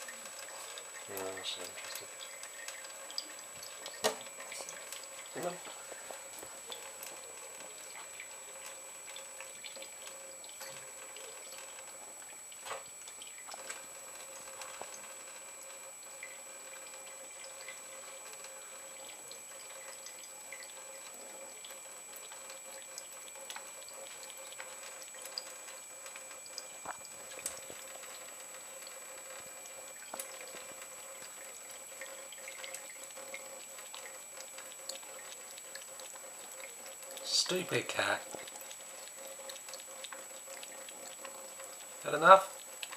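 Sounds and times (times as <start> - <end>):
tap water running into sink: 0.0 - 42.9
cat lapping water: 16.2 - 42.9.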